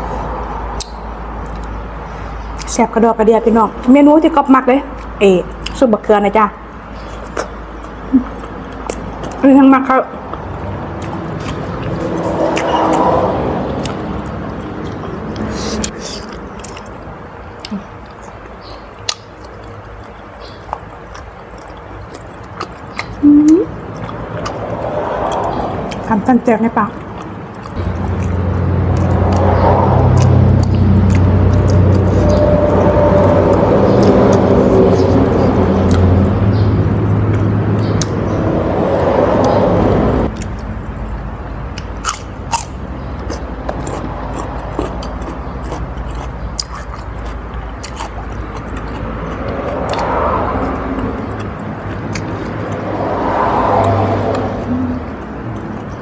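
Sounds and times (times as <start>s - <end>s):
person chewing crunchy food: 7.0s - 9.4s, 10.3s - 26.1s, 26.9s - 38.3s, 40.3s - 40.7s, 41.4s - 56.0s
person humming: 23.2s - 23.7s, 54.6s - 55.1s.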